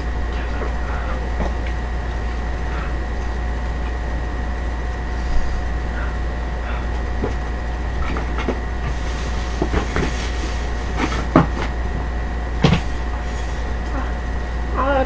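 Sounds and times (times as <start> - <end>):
steady low hum: 0.0 - 15.0
knocks of objects being handled: 8.0 - 13.0.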